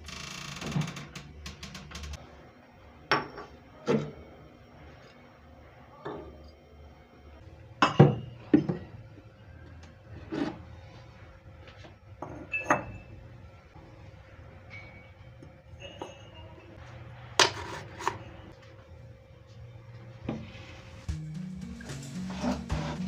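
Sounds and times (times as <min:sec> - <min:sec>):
glass bottles clinking on counter: 0:07.8 - 0:08.9, 0:12.2 - 0:13.2, 0:15.8 - 0:16.6.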